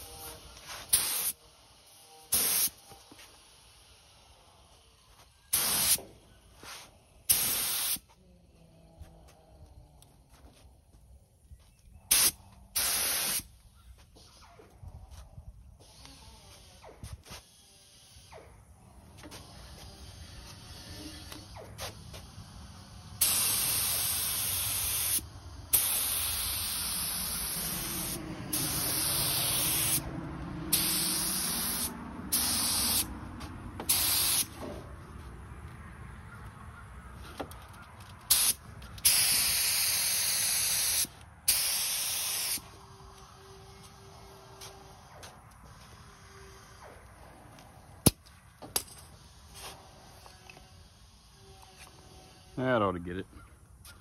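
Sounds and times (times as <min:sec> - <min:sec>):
spray gun hissing: 0:00.0 - 0:02.8, 0:05.5 - 0:08.0, 0:12.1 - 0:13.5, 0:22.9 - 0:30.1, 0:30.7 - 0:33.1, 0:33.9 - 0:34.6, 0:38.3 - 0:42.6.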